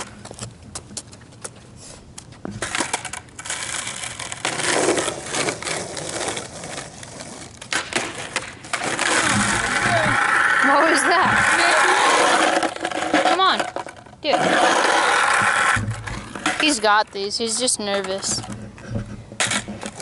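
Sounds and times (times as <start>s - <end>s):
skateboard wheels rolling on asphalt: 0.0s - 20.0s
skateboard clacking on pavement: 2.5s - 20.0s.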